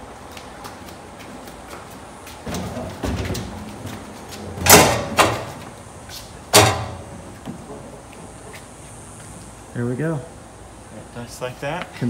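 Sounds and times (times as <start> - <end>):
load clunking: 2.4 - 8.1
metal pivot creaking: 4.4 - 5.6, 6.5 - 7.1.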